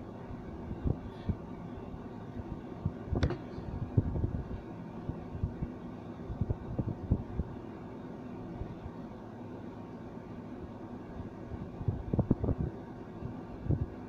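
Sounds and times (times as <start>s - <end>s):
steady background hum: 0.0s - 14.0s.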